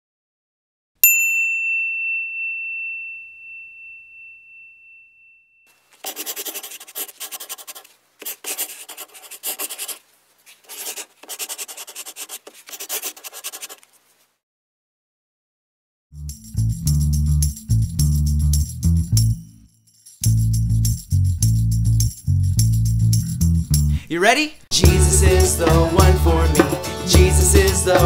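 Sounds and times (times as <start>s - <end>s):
bell-like ding: 1.0s - 5.7s
chalk scratching on chalkboard: 5.9s - 14.2s.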